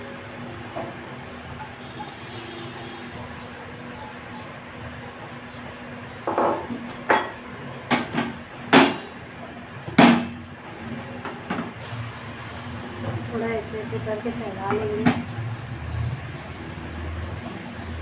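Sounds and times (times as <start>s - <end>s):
batter frying in oil: 1.5s - 6.3s, 11.8s - 13.7s.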